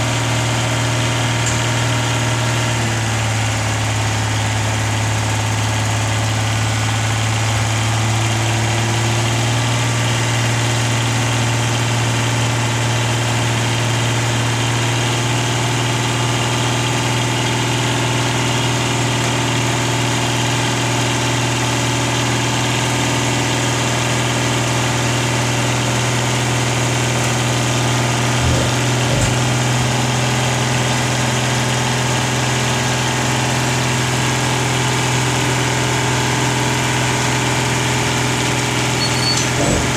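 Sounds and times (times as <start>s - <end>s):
diesel truck engine running: 0.0s - 39.9s
hydraulic arm lifting bin: 26.8s - 31.5s, 38.8s - 39.9s.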